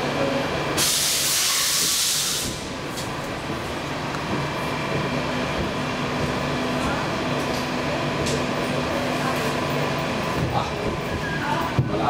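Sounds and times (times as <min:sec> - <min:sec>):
train equipment hum: 0:00.0 - 0:12.0
compressed air hiss: 0:00.8 - 0:02.6.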